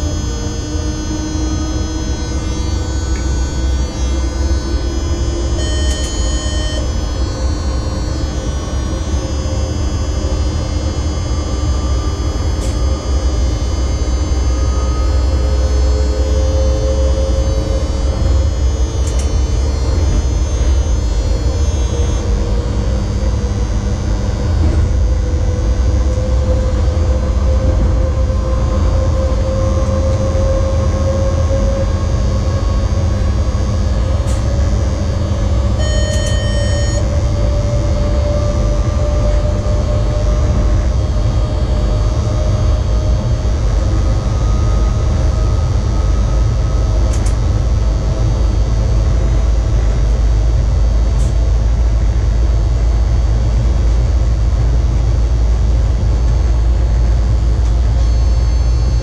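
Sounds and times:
motor whine rising in pitch: 0:00.0 - 0:59.0
train running rumble: 0:00.0 - 0:59.0
short electronic beep: 0:00.1 - 0:16.0, 0:16.8 - 0:22.3, 0:35.8 - 0:37.2, 0:57.8 - 0:59.0.

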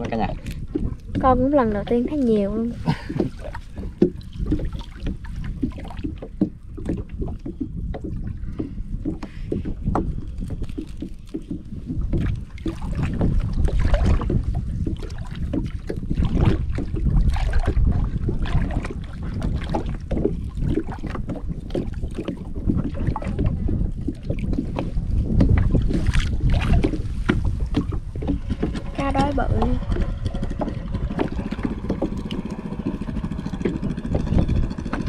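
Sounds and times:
irregular knocks: 0:00.0 - 0:02.1, 0:03.1 - 0:10.1
water splashing against boat: 0:00.0 - 0:35.0
wind rumbling on microphone: 0:00.0 - 0:35.0.

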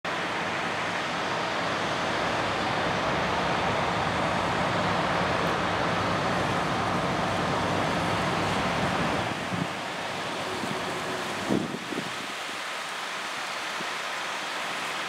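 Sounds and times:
tractor engine: 0:00.1 - 0:11.9
combine harvester engine hum: 0:00.1 - 0:15.0.

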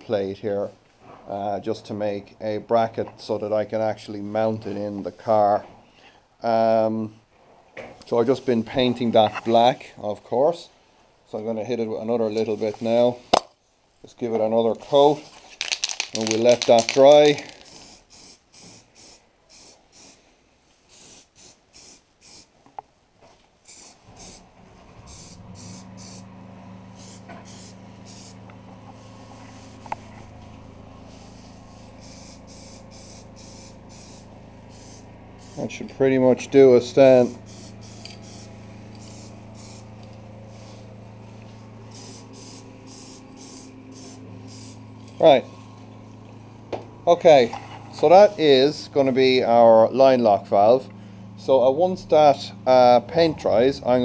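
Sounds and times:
spray can hissing bursts: 0:15.6 - 0:20.2, 0:20.9 - 0:22.6, 0:23.6 - 0:26.3, 0:26.9 - 0:28.4, 0:31.1 - 0:35.7, 0:37.2 - 0:39.9, 0:41.8 - 0:44.8
steady low hum: 0:23.6 - 0:54.0.

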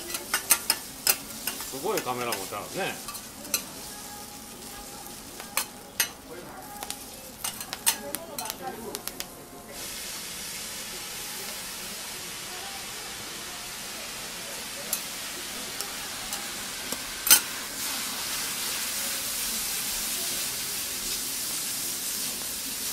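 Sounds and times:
spatula clacking on griddle: 0:00.0 - 0:03.9, 0:05.3 - 0:09.3, 0:14.9 - 0:17.6
noodles sizzling on griddle: 0:00.0 - 0:22.9
light spatula taps: 0:06.8 - 0:09.3.

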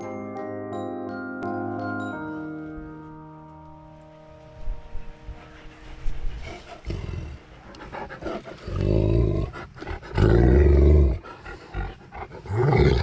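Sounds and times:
dogs growling: 0:06.4 - 0:13.0.

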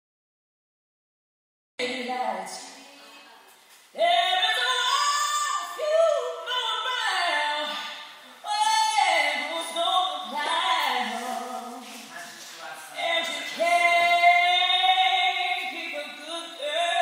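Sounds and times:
woman singing: 0:04.0 - 0:12.1, 0:12.9 - 0:17.0.

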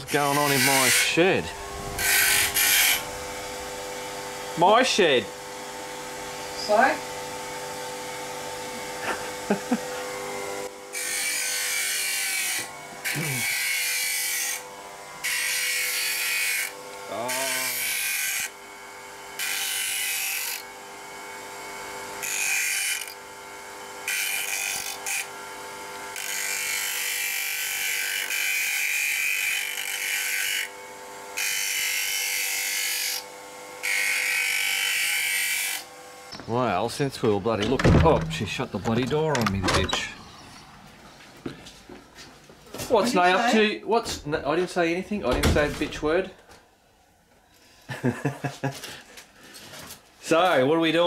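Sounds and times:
high grinding hiss: 0:00.0 - 0:06.9
bench grinder humming: 0:00.0 - 0:36.4.

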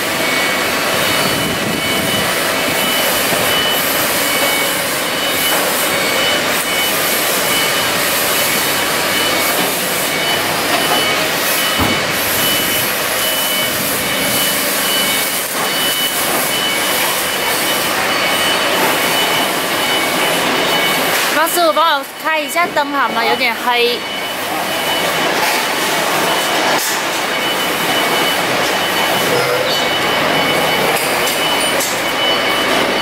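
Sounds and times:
forklift engine running: 0:00.0 - 0:21.6, 0:24.0 - 0:33.0.

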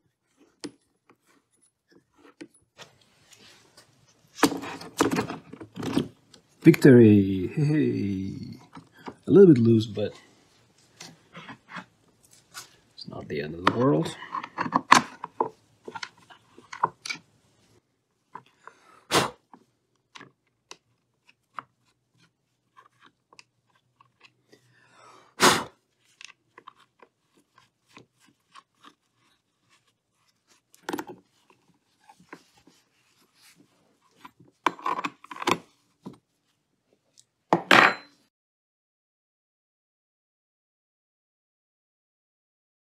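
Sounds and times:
small clicks rattles and scrapes: 0:13.7 - 0:17.3, 0:19.5 - 0:24.5.

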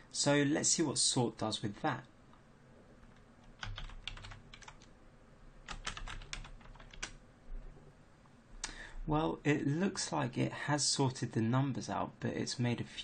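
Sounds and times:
keyboard typing: 0:03.0 - 0:04.9, 0:05.6 - 0:07.2.

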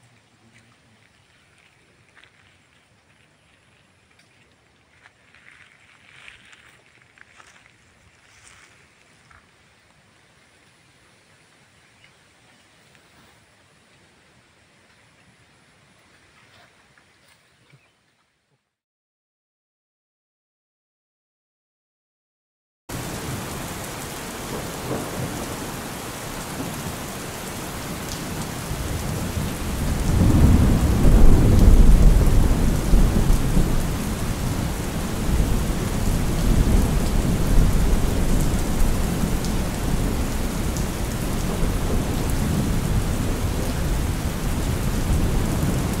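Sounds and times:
steady rain: 0:00.0 - 0:16.4, 0:22.9 - 0:46.0
thunder rumbling: 0:23.0 - 0:46.0.

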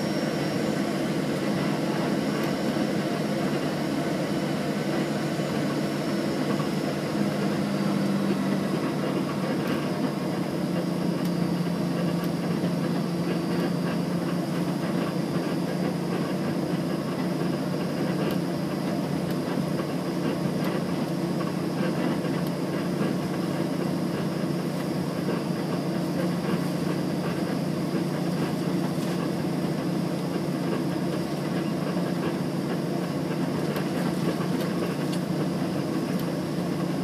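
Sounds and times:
faint high whine: 0:00.0 - 0:08.6
plane engine drone: 0:00.0 - 0:37.0.

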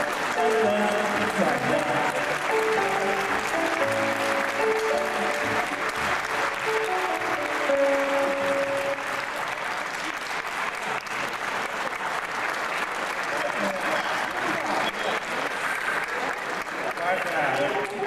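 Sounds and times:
audience applauding: 0:00.0 - 0:18.0.

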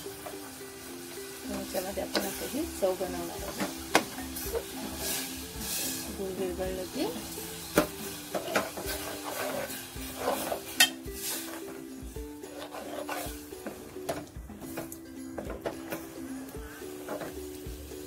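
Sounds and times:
spoon scraping around pot: 0:08.3 - 0:11.7, 0:12.4 - 0:14.9.

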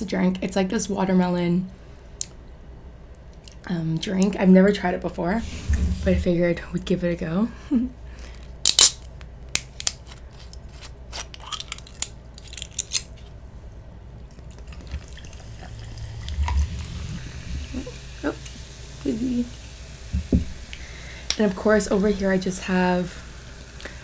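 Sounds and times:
drink pouring into glass jar: 0:14.4 - 0:17.4.

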